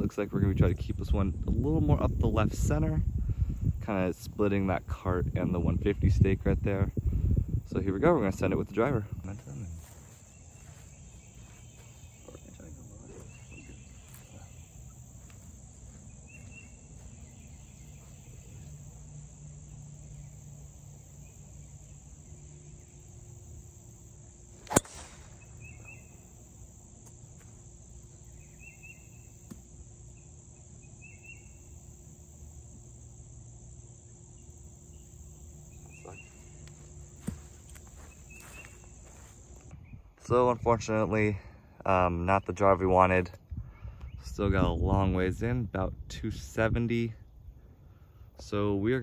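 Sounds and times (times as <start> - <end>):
high-pitched insect drone: 9.8 - 39.6
golf club striking ball: 24.6 - 26.0.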